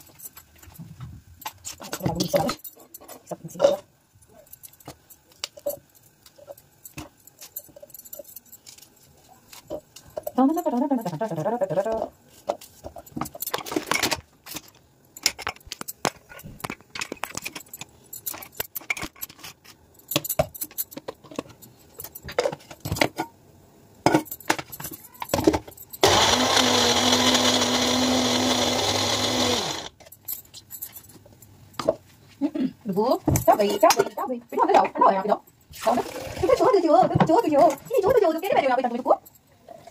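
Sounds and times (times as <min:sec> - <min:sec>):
electric mixer grinder running: 0:26.0 - 0:29.9.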